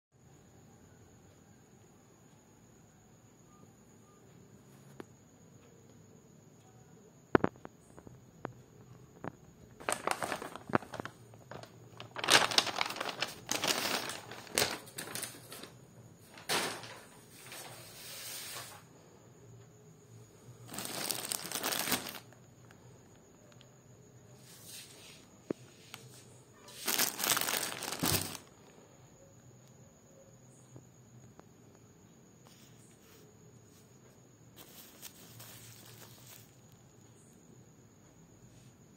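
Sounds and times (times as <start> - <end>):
packaging crinkling: 9.8 - 15.8, 20.7 - 22.3, 26.7 - 28.5, 34.6 - 36.5.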